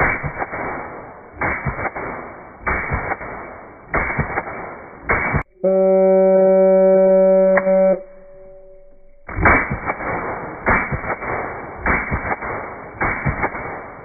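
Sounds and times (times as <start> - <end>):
slowed suppressed gunshots: 0.0 - 5.6, 9.2 - 14.0
slowed low beep tone: 5.4 - 9.5.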